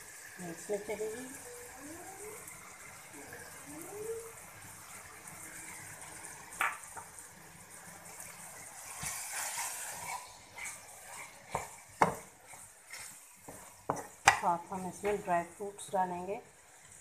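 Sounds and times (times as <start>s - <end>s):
food sizzling in a wok: 0.0s - 17.0s
spatula knocking against pan: 11.5s - 12.3s.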